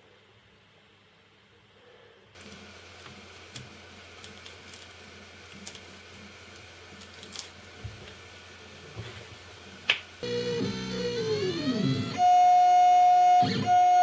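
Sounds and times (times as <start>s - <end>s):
faint steady hum: 0.0s - 14.0s
tape and paper crinkling: 2.4s - 8.3s.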